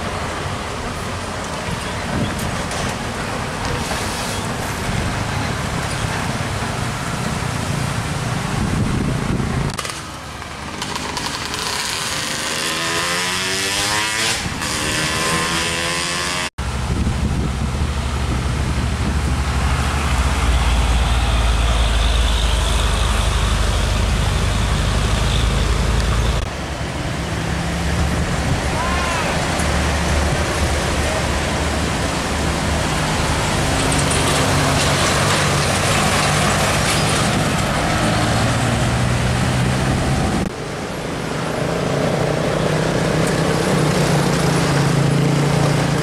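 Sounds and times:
motor scooters passing: 9.7 - 16.5, 41.4 - 46.0
diesel truck engine: 16.6 - 46.0.

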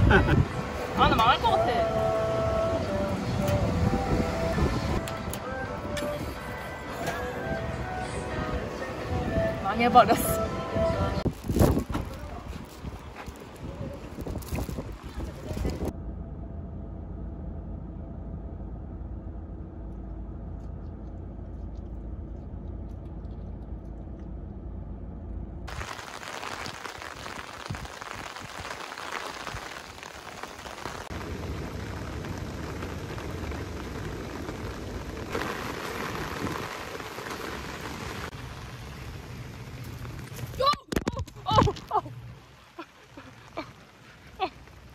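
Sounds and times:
heavy rain falling: 0.0 - 15.9, 25.7 - 44.9
car road rumble: 0.0 - 44.9.

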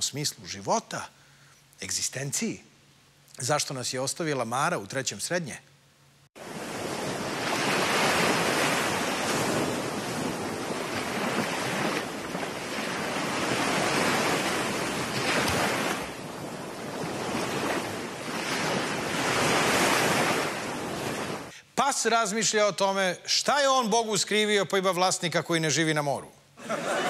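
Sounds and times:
sea surf breaking on beach: 6.4 - 21.5.

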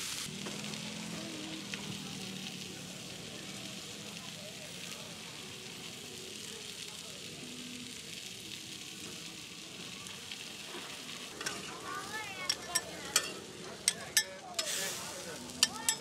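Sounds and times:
food sizzling on a griddle: 0.0 - 16.0
metal spatula clanking on griddle: 11.3 - 16.0.

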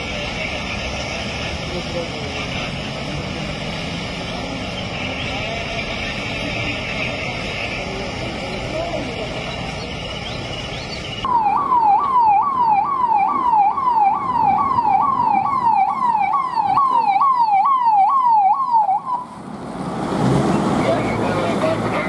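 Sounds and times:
passing traffic: 0.0 - 22.0
police siren yelping: 11.2 - 19.4.

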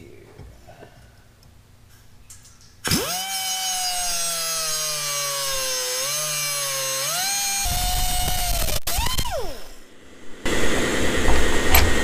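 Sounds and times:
pneumatic cutoff tool whine: 2.8 - 9.8.

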